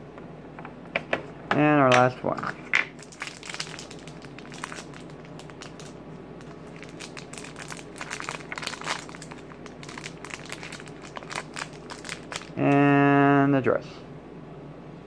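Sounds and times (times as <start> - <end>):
wrapper crackling: 3.0 - 12.8.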